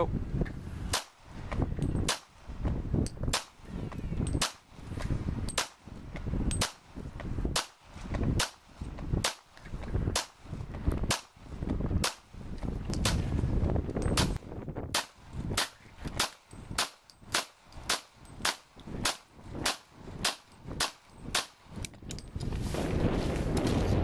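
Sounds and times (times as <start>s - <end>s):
handgun shots: 14.1s - 21.6s.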